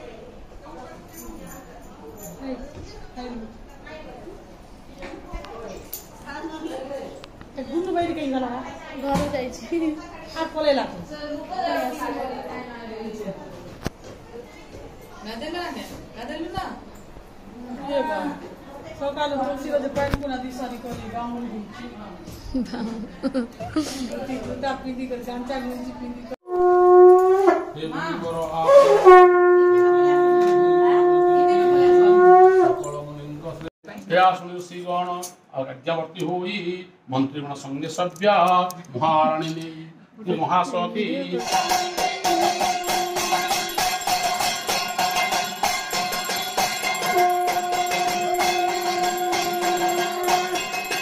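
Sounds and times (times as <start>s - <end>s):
conch shell blowing: 26.4s - 27.8s, 28.6s - 33.0s, 41.5s - 51.0s
long held note: 26.4s - 27.8s, 28.6s - 32.9s, 47.0s - 51.0s
percussion beat: 41.4s - 51.0s
jingling bells: 42.1s - 51.0s.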